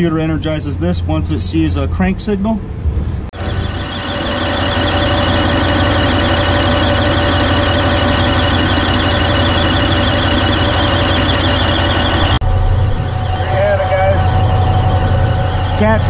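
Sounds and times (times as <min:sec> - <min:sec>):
diesel engine running: 0:03.1 - 0:16.0
high wavering whine: 0:03.4 - 0:16.0.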